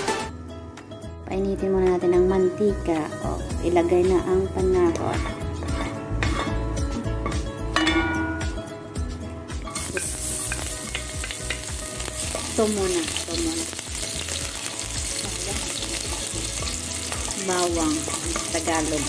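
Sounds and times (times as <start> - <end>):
wooden spatula stirring in pan: 5.2 - 6.6
garlic sizzling in oil: 9.6 - 19.0.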